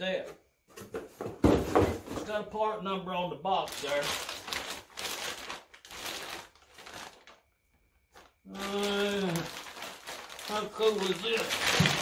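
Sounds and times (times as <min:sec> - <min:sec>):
plastic bag crinkling: 0:03.5 - 0:07.5, 0:08.1 - 0:12.0.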